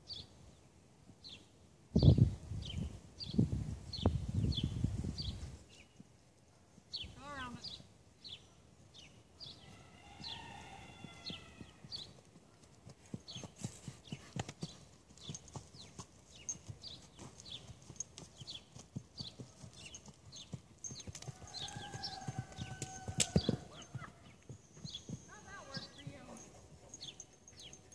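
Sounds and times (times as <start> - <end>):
horse hooves thudding: 10.2 - 27.9.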